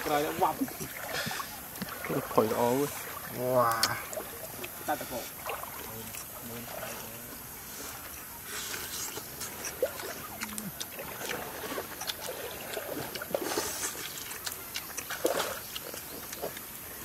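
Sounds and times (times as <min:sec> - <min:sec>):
stream water trickling: 0:00.0 - 0:17.0
lip smacking and chewing: 0:08.7 - 0:17.0.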